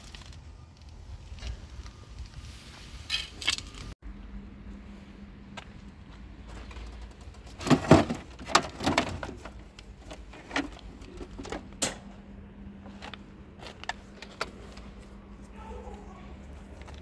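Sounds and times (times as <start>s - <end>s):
plastic and metal junk clattering: 6.6s - 12.0s.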